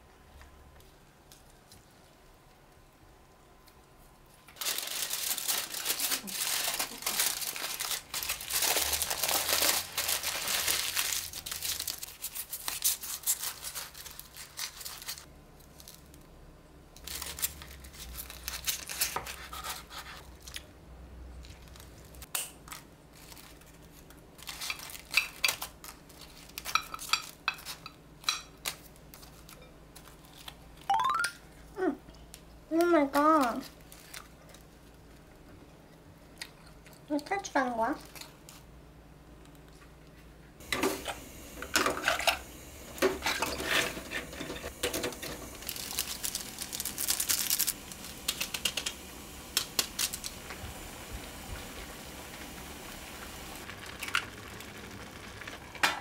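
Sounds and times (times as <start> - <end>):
aluminium foil crinkling: 4.5 - 16.3, 17.0 - 20.7, 21.4 - 30.9, 32.7 - 35.4, 36.3 - 38.7, 42.0 - 55.7
knife cutting through foil: 4.6 - 15.3, 17.1 - 20.3.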